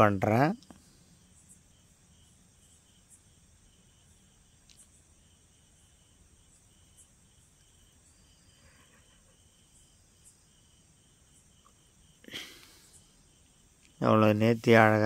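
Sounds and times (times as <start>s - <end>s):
insects chirring: 0.0s - 15.0s.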